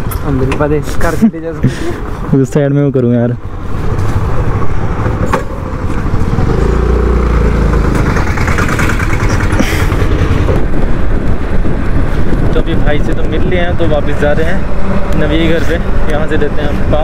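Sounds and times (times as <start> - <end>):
wind buffeting microphone: 3.4 - 17.0
scooter engine running: 4.8 - 10.6.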